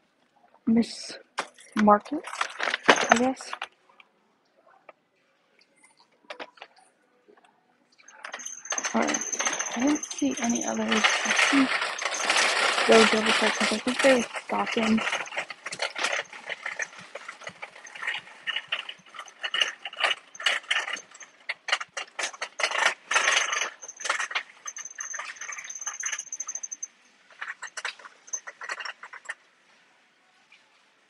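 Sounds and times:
shopping cart rattling on tiles: 1.6s - 3.7s, 8.0s - 29.4s.

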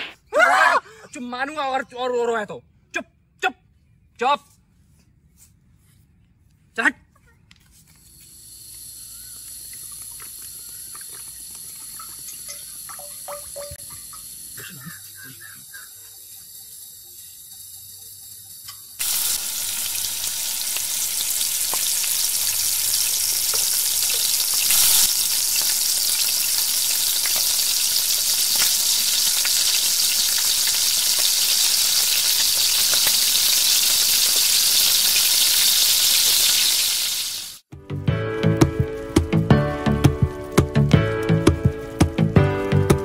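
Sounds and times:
food deep-frying in oil: 8.1s - 37.7s.

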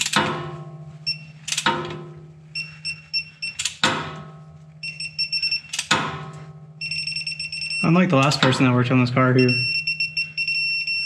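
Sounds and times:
torque wrench beeping: 1.0s - 1.6s, 2.6s - 3.8s, 4.8s - 5.9s, 6.8s - 8.5s, 9.4s - 11.0s.

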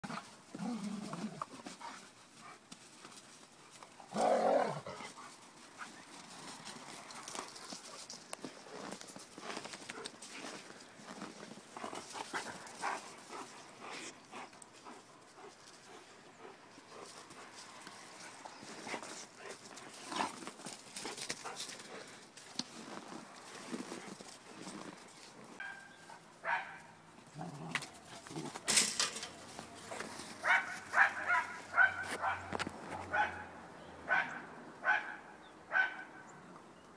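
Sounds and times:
dogs growling: 0.0s - 2.0s, 4.0s - 5.2s, 27.2s - 28.8s
paws scuffling in snow: 0.1s - 26.8s, 29.4s - 33.3s
dog yipping: 30.4s - 32.5s.

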